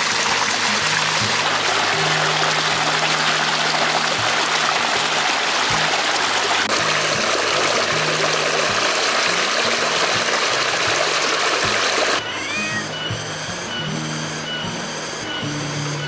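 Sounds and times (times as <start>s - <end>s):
water rushing over rocks: 0.0s - 12.2s
background music: 0.0s - 16.0s.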